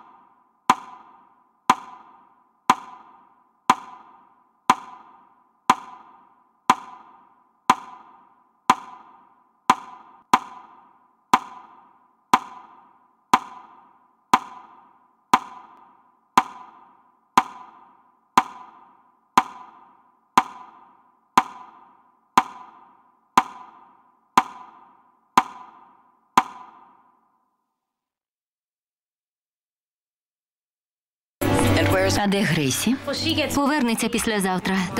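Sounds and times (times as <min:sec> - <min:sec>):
metronome ticking: 0:00.0 - 0:27.0.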